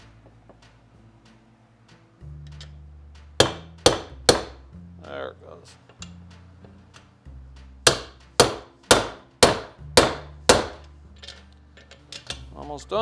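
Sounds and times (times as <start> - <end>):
hammer striking metal: 3.3 - 4.7, 7.8 - 10.9.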